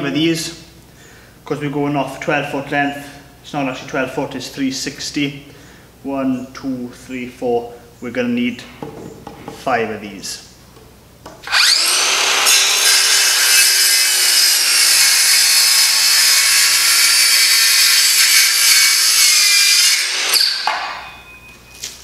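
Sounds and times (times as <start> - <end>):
circular saw cutting wood: 11.4 - 21.2.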